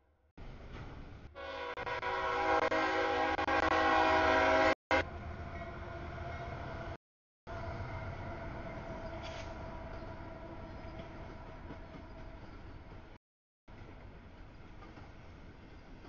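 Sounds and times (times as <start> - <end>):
passing freight train rumble: 0.4 - 16.0
locomotive air horn: 1.4 - 5.2.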